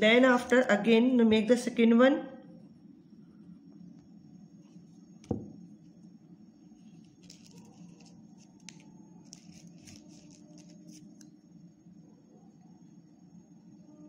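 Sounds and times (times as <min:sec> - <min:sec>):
paper rustling: 0:06.9 - 0:11.1.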